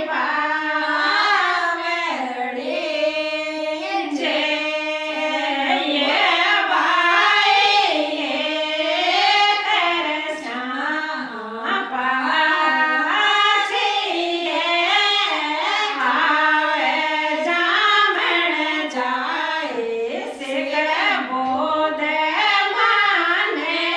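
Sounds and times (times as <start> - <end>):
women singing together: 0.0 - 23.9.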